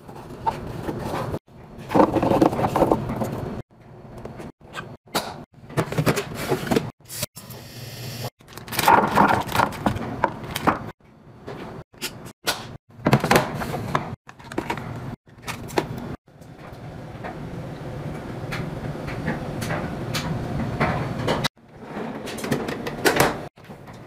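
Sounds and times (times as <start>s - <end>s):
plastic containers clattering: 0.1s - 3.5s, 8.4s - 10.9s, 13.0s - 15.9s.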